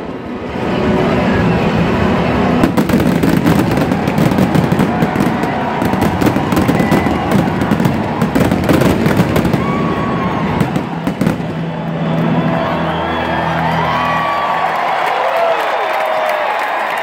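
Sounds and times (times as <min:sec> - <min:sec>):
fireworks bursting and crackling: 0:01.7 - 0:12.1.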